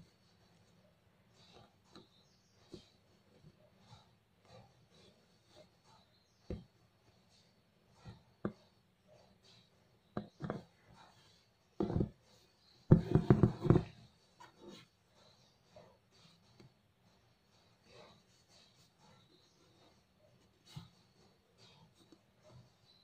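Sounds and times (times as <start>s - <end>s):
wooden embroidery hoop knocking: 10.2s - 10.7s, 11.8s - 12.2s, 12.9s - 14.0s.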